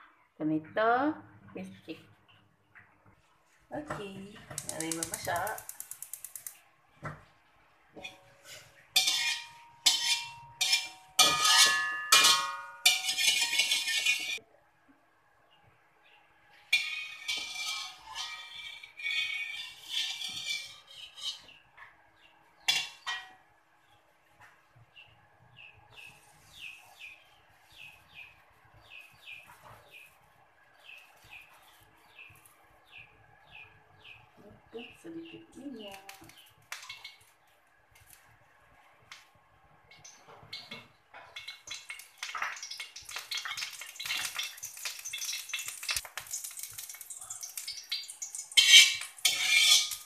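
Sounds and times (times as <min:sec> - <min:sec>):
spatula scraping metal wok: 0:08.0 - 0:14.4, 0:16.6 - 0:21.6, 0:48.5 - 0:50.0.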